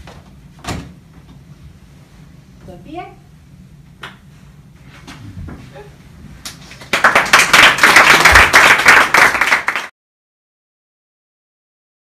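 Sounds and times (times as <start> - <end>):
audience applauding: 6.7 - 9.9.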